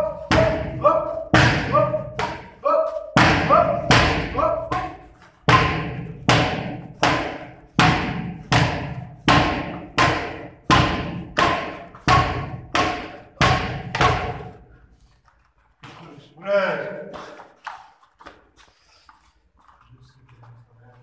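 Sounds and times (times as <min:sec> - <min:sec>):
boxing gloves smacking mitts: 0:00.0 - 0:14.8.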